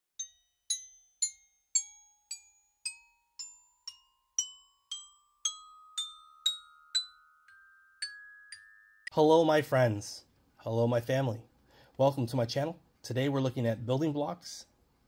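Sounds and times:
bell-like struck notes: 0.2s - 9.4s.

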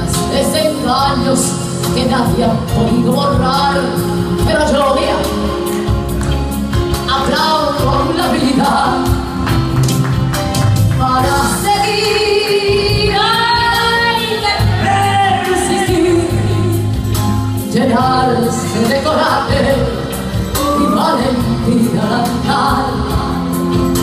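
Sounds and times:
woman singing: 0.0s - 5.7s, 6.9s - 9.4s, 10.9s - 24.0s
instrumental accompaniment: 0.0s - 24.0s.

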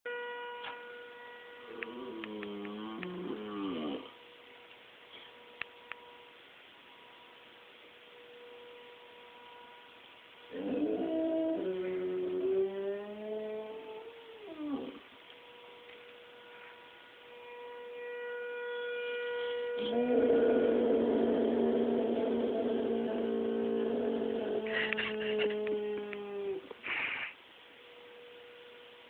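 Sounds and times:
dog howling: 1.7s - 4.2s, 10.5s - 15.1s, 19.4s - 26.8s.

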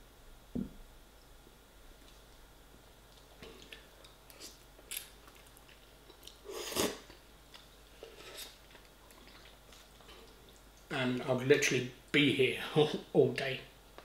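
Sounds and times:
person slurping and chewing noodles: 3.4s - 10.6s.

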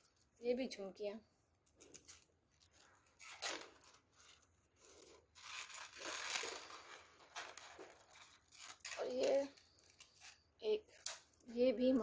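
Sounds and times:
rustling and rattling of jewellery: 1.6s - 11.5s.

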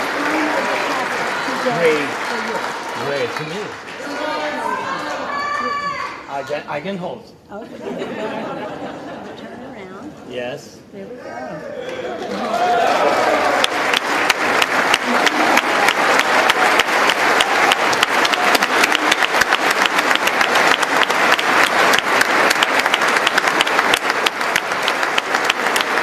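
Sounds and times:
audience applauding: 0.0s - 6.2s, 11.8s - 26.0s.

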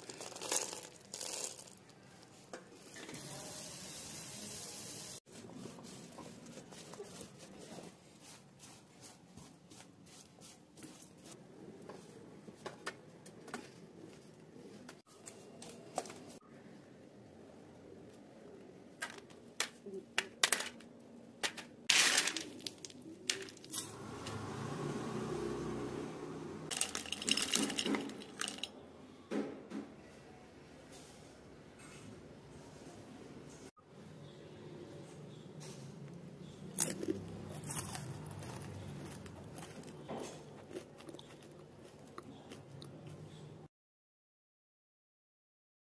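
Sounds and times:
crunching crisp snack: 0.0s - 2.4s, 36.7s - 43.2s.

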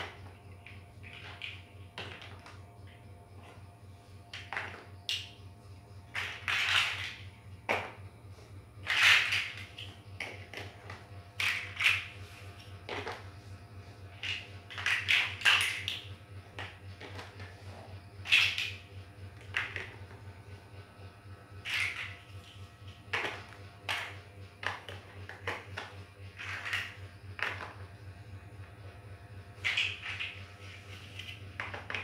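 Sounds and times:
plastic bricks clicking and clattering: 0.6s - 2.6s, 8.8s - 12.1s, 14.2s - 17.4s, 21.6s - 27.7s, 29.6s - 30.4s.

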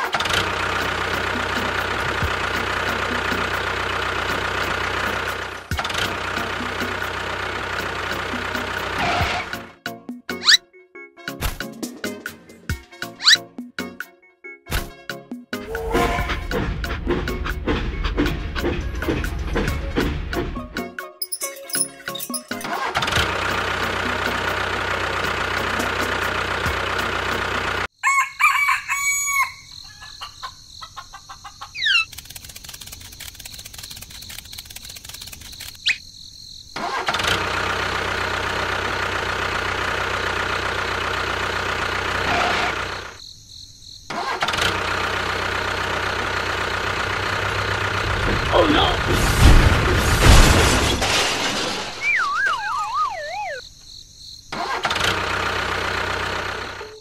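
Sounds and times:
rooster crowing: 28.0s - 31.8s.

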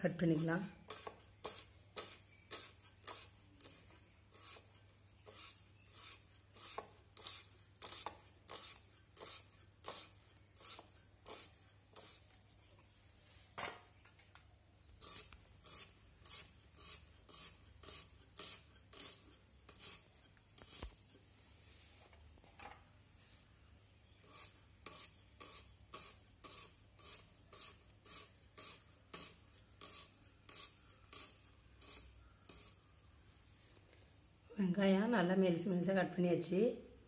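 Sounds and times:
onion being sliced on a blade: 0.1s - 12.6s, 15.0s - 21.2s, 24.2s - 32.8s.

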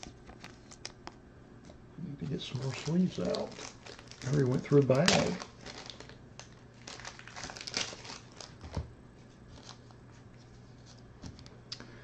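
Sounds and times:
plastic bag crinkling: 2.2s - 8.8s.

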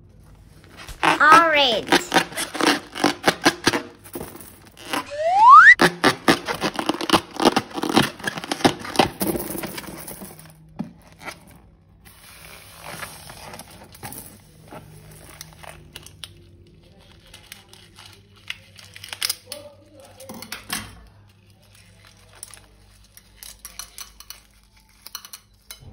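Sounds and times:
balloon crackling and tearing: 0.6s - 3.9s, 4.8s - 9.2s
rubbery squeak: 0.7s - 3.8s, 4.8s - 8.8s
soft scraping and rustling: 9.5s - 19.0s.

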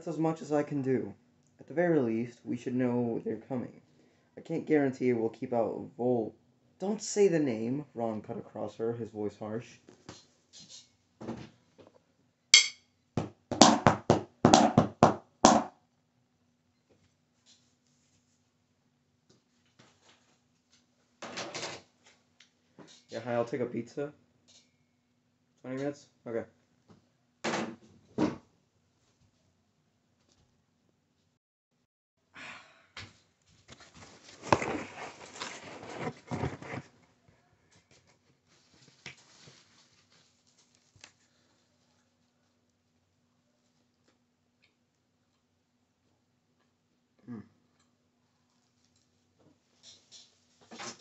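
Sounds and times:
strikes on drum practice pad: 14.5s - 14.8s, 15.5s - 15.7s
cardboard box rustling and knocking: 34.2s - 37.0s.

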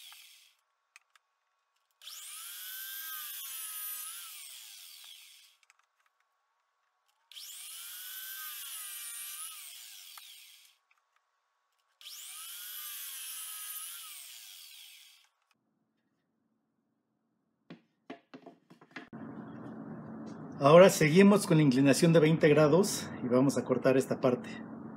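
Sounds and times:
miter saw cutting wood: 0.0s - 0.6s, 2.0s - 5.6s, 7.3s - 10.8s, 12.0s - 15.4s.

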